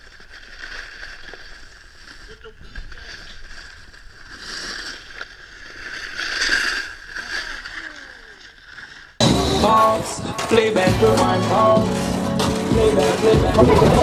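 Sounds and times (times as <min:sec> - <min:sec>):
loud music: 0:09.2 - 0:14.0.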